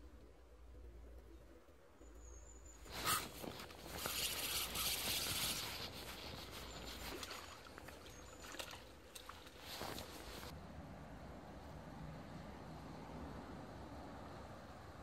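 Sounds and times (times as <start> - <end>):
dry reeds rustling and crackling: 2.8 - 10.5
reed snapping: 3.0 - 10.5.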